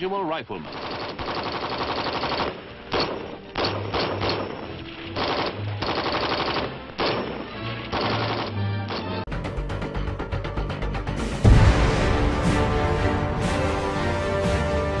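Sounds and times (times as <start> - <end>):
rifle fire: 0.7 - 9.2
music playing: 2.3 - 15.0.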